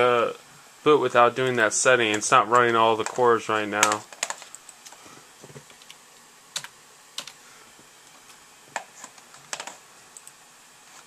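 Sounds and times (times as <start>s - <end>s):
low steady hiss: 0.0s - 11.0s
keyboard clicks: 8.8s - 10.4s.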